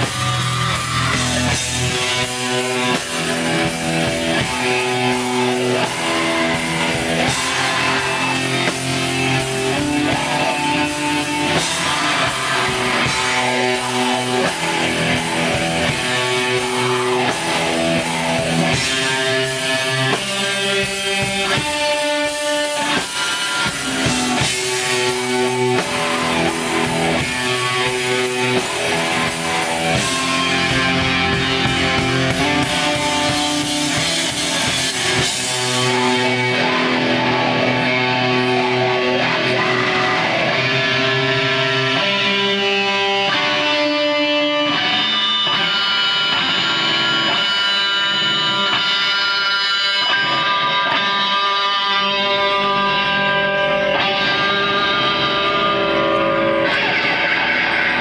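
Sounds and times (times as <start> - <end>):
drum kit with cymbals: 0.0 - 43.6
distorted electric guitars: 0.0 - 58.0.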